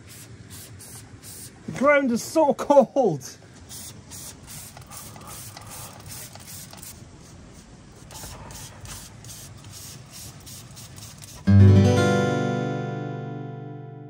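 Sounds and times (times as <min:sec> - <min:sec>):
spray gun hissing in bursts: 0:00.0 - 0:01.7, 0:03.6 - 0:11.5.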